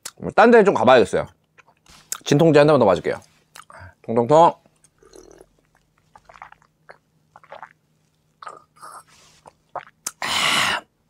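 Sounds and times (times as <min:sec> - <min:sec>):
man swallowing a drink: 0:05.0 - 0:07.8, 0:09.4 - 0:10.2.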